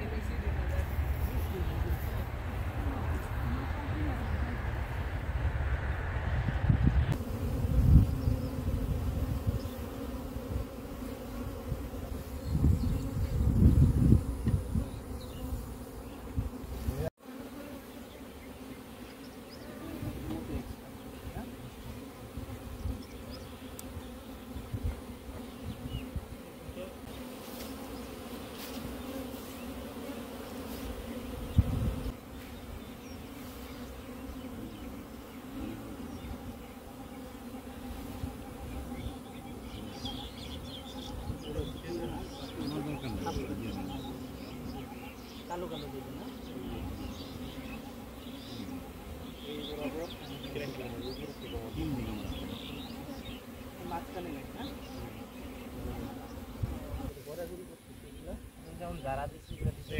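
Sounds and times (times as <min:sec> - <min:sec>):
low rumbles on microphone: 0:00.0 - 0:09.6
honeybees buzzing: 0:00.0 - 0:59.9.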